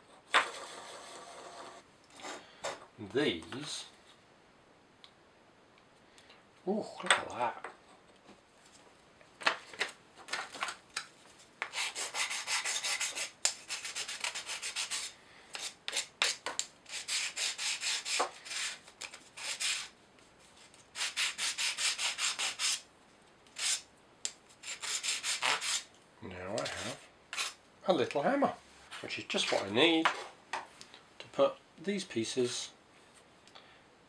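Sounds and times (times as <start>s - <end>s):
rubbing on thin plywood: 11.6s - 18.8s.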